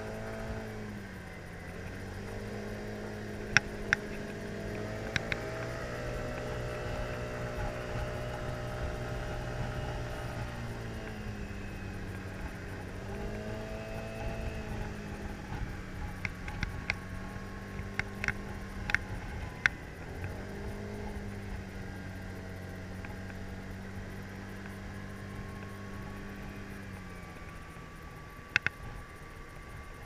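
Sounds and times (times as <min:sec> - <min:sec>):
scooter engine running: 0:00.0 - 0:30.0
sharp clicks: 0:03.5 - 0:06.5, 0:17.7 - 0:20.4, 0:28.5 - 0:29.0.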